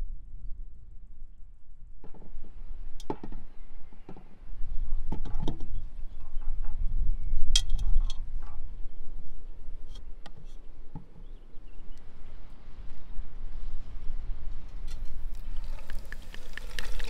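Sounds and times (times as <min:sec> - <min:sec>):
potatoes and eggs clinking in pot: 0:15.4 - 0:17.0.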